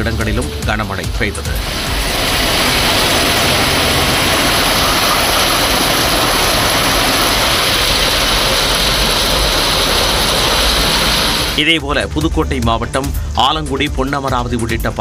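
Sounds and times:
heavy rain falling: 1.6s - 11.7s.

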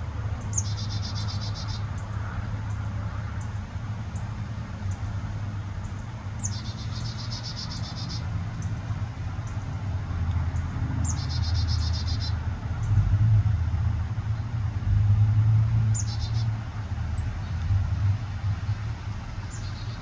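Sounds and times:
songbird trilling: 0.4s - 2.0s, 5.9s - 8.7s, 11.0s - 12.4s, 15.9s - 16.5s, 19.4s - 20.0s.

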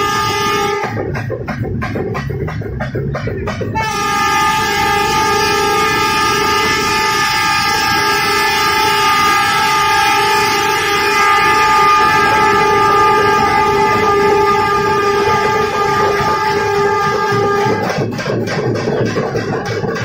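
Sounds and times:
locomotive horn blast: 0.0s - 1.2s, 3.7s - 18.2s.

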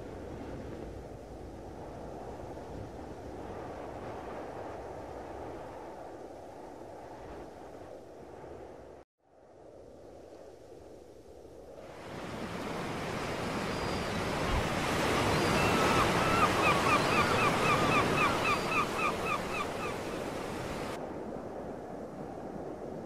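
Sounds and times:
waves washing onto beach: 11.8s - 23.0s
gull calling: 13.1s - 21.0s.

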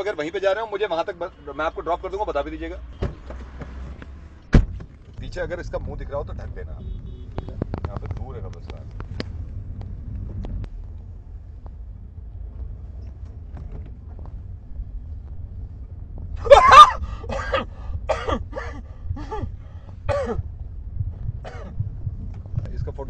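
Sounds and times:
car cabin road noise: 0.0s - 23.0s
man yelling and crying out: 16.4s - 17.2s.

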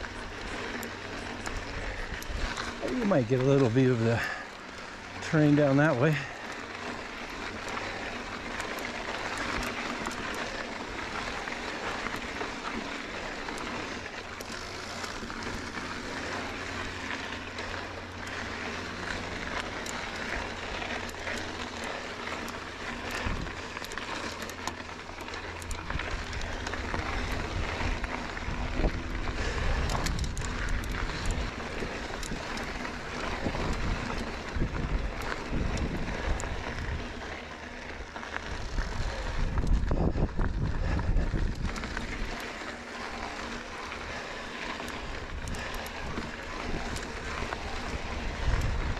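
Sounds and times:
bike clicks and rattles: 0.0s - 48.9s
bike tyres crunching on gravel: 0.0s - 48.9s
wind buffeting microphone: 23.1s - 23.6s, 25.8s - 37.2s, 38.4s - 42.4s, 45.0s - 48.9s.

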